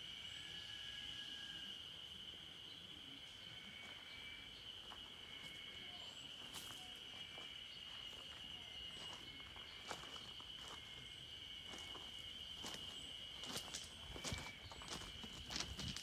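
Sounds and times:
insects droning: 0:00.0 - 0:16.0
footsteps on gravel: 0:06.5 - 0:16.0.

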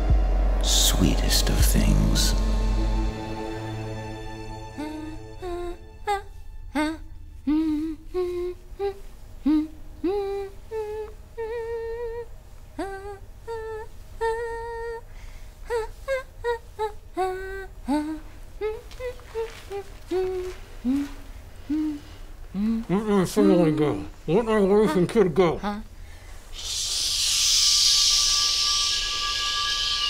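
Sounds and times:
woman humming a tune: 0:04.4 - 0:25.9.

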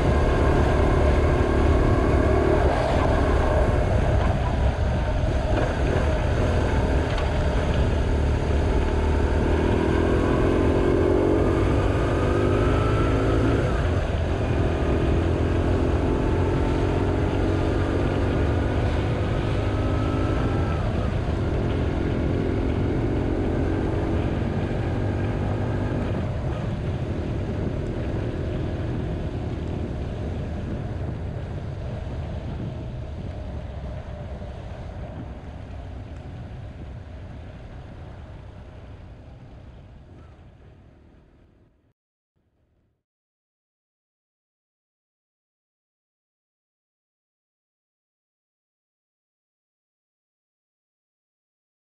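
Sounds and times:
motorcycle engine accelerating: 0:00.0 - 0:41.3
wind and road noise: 0:00.0 - 0:41.9.

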